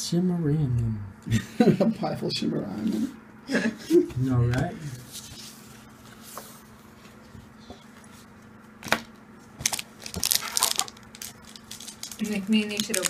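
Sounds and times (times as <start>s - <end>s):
foil wrappers crinkling: 8.8s - 13.0s.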